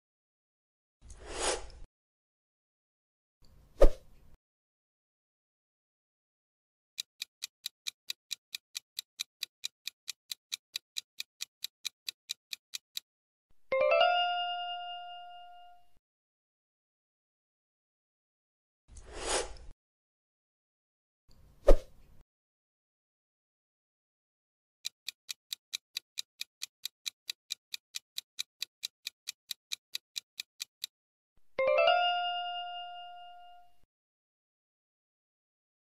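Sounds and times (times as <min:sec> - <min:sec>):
clock ticking: 0:07.0 - 0:13.1, 0:24.8 - 0:31.0.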